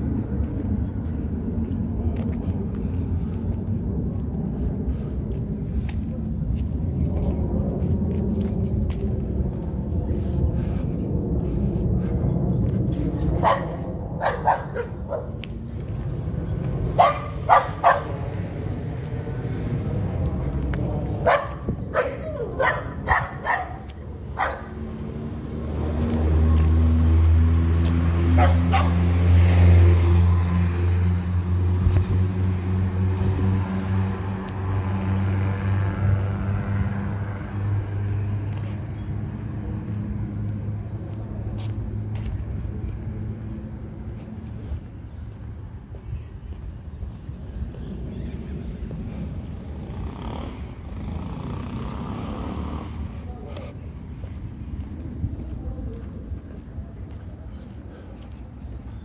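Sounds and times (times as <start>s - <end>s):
vehicle engine humming: 0.0s - 59.0s
dog barking: 13.4s - 15.4s, 17.0s - 18.2s, 21.2s - 24.8s, 28.4s - 29.0s.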